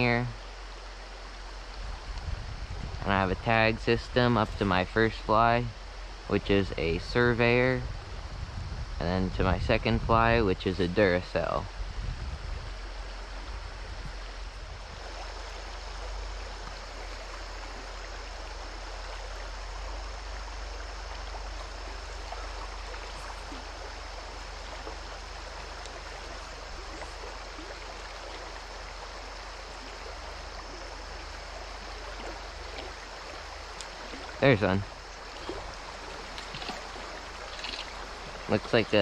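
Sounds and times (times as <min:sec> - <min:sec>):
water rushing over rocks: 0:12.7 - 0:39.0.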